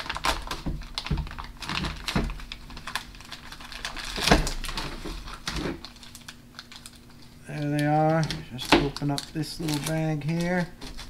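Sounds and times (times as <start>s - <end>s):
plastic package clicking: 5.9s - 11.0s.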